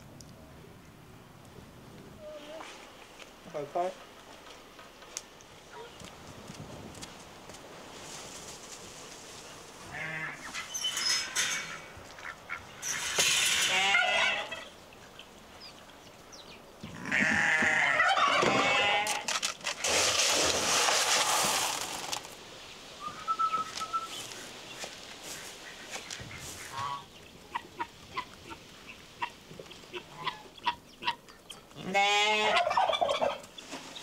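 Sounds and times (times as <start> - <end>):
farm animals calling: 9.8 - 15.3, 16.8 - 19.3, 25.2 - 34.0.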